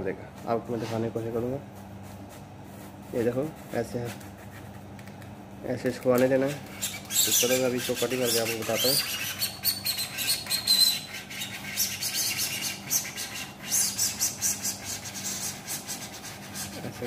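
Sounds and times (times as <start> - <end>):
cutting tool scraping duct panel: 6.3 - 17.0.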